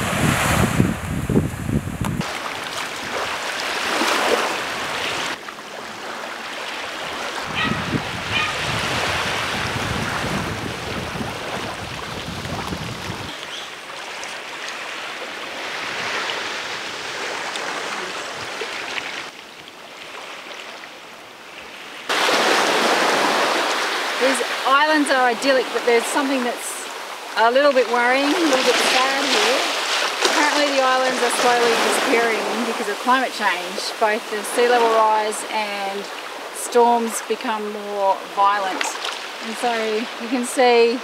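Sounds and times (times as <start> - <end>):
wind buffeting microphone: 0.0 - 3.4, 7.0 - 13.6
waves washing onto beach: 0.0 - 41.0.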